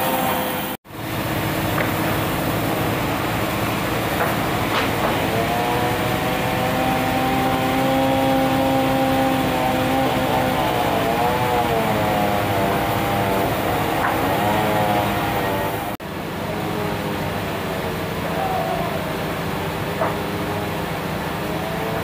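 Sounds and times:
sawmill machinery droning: 0:00.0 - 0:22.0
wooden boards knocking: 0:04.1 - 0:05.6, 0:20.0 - 0:20.3.

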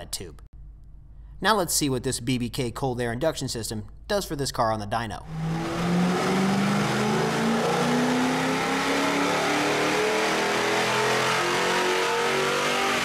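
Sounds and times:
car engine revving at full throttle: 0:05.3 - 0:13.0.

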